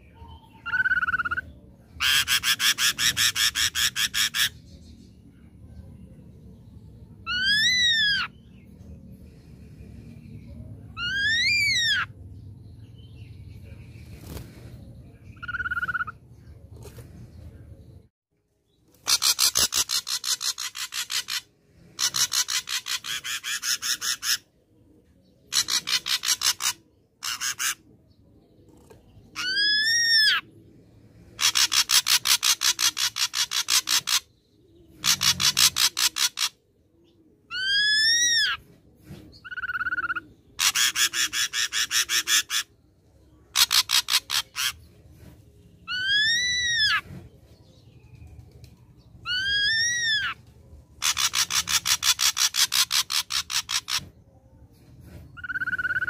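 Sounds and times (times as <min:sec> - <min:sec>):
whistled bird notes: 0:55.3 - 0:56.0.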